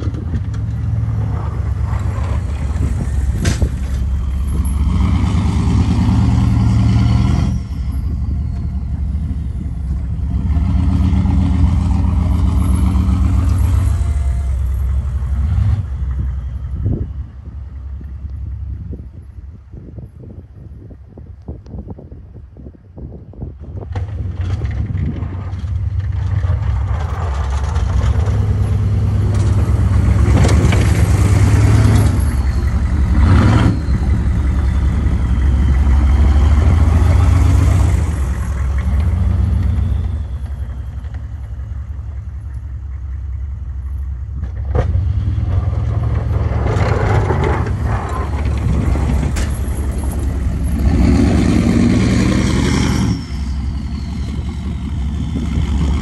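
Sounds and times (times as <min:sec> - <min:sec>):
diesel engine under load: 0:00.0 - 0:56.0
faint turbo whistle: 0:32.0 - 0:42.2.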